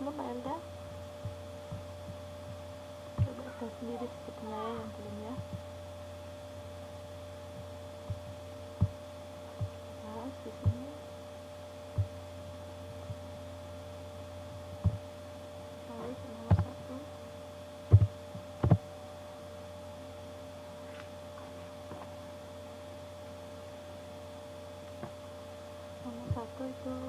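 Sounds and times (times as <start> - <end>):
steady electrical hum: 0.0 - 27.0
short dull thumps: 1.2 - 3.4, 7.5 - 9.8, 11.9 - 12.2, 14.5 - 15.1, 16.4 - 16.8, 17.9 - 18.9.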